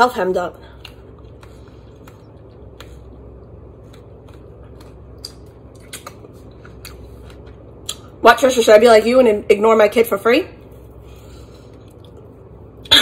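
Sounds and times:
low room hum: 0.0 - 13.0
person chewing food: 0.7 - 8.2, 10.7 - 12.6
wet mouth clicks: 5.1 - 7.0.

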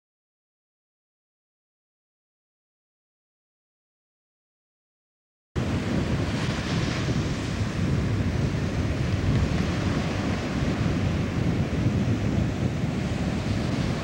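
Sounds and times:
ocean surf breaking: 5.6 - 14.0
wind buffeting microphone: 5.6 - 14.0.

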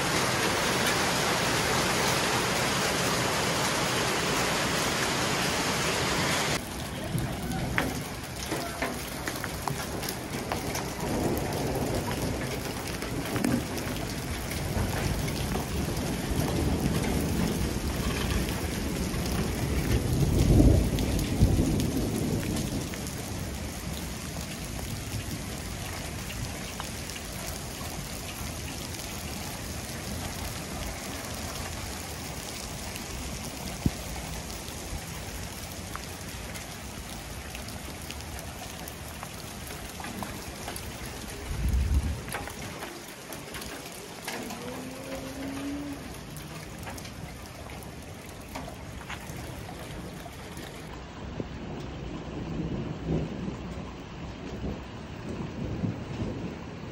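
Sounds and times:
rain and hail falling: 0.0 - 56.9
thunder rumbling: 6.5 - 56.9.

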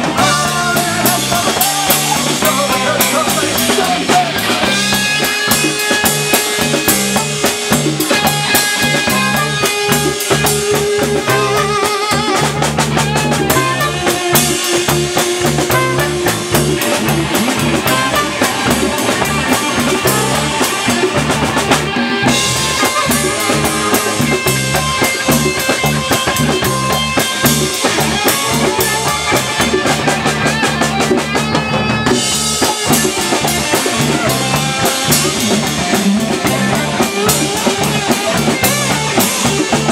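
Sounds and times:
drum kit: 0.0 - 39.9
electric bass line: 0.0 - 39.9
horn section holding notes: 6.8 - 30.0.

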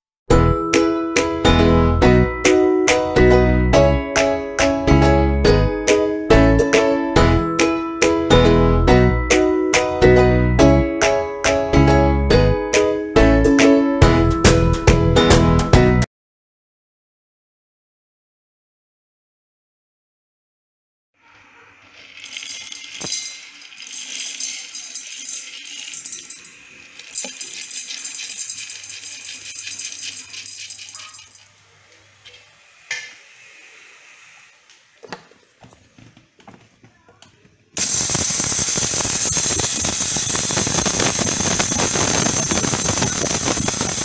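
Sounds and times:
seeds rattling in steel jar: 21.8 - 31.6, 37.8 - 44.0
electric mixer grinder running: 21.8 - 35.3, 37.8 - 44.0.

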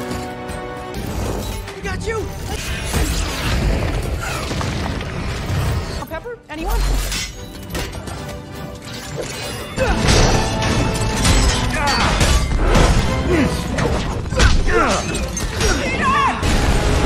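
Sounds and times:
action film music: 0.0 - 17.0.

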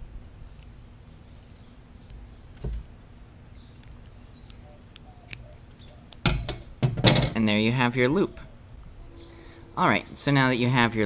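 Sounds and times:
faint chirps: 8.2 - 10.1.

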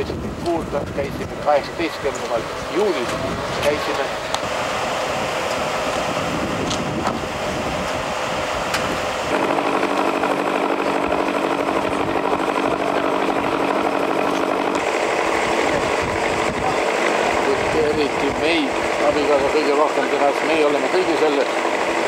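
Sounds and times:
boat engine idling: 0.0 - 22.0.

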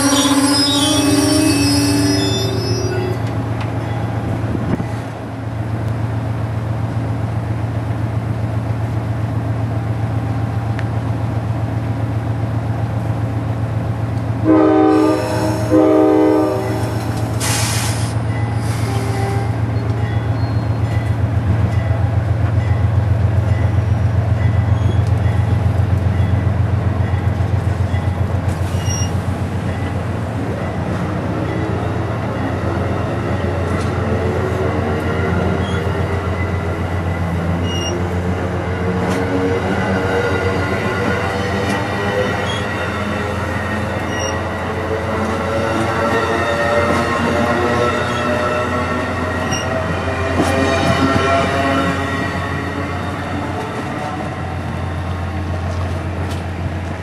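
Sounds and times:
locomotive air horn: 0.0 - 3.2, 14.4 - 19.8
train coaches rumbling past: 0.0 - 57.0.

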